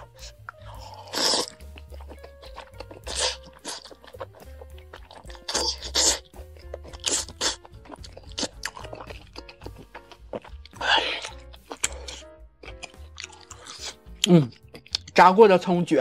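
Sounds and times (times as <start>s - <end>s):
person slurping noodles: 0.0s - 9.8s, 10.4s - 12.2s
background music: 0.0s - 16.0s.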